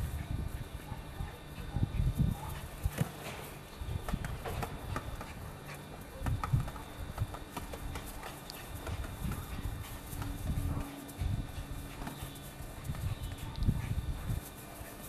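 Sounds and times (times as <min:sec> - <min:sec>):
dog pawing ball thumps: 0:02.8 - 0:05.5.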